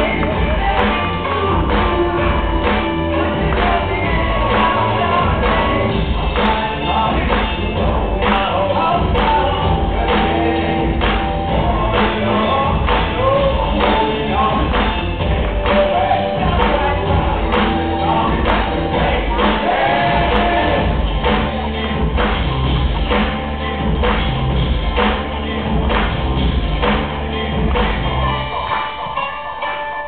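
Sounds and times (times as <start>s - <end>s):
person singing: 0.0s - 21.1s
steady drum beat: 0.0s - 28.3s.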